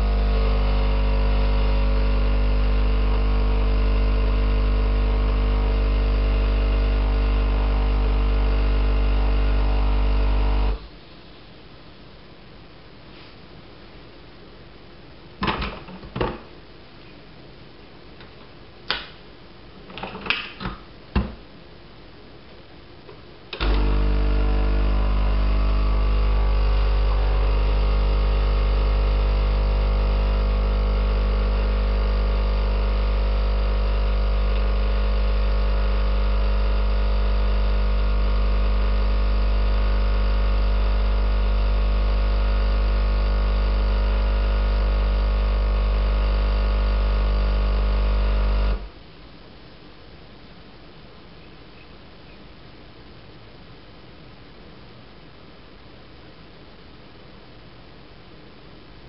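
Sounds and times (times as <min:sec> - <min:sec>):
coffee machine pump humming: 0:00.0 - 0:10.8, 0:23.5 - 0:48.9.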